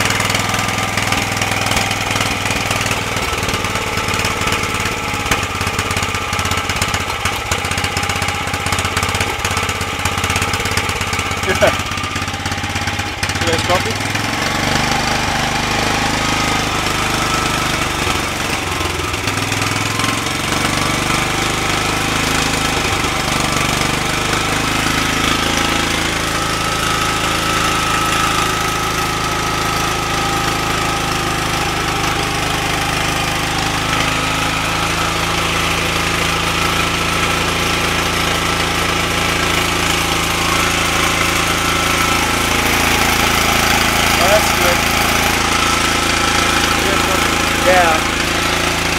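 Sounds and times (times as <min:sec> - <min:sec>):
small engine running: 0:00.0 - 0:48.9.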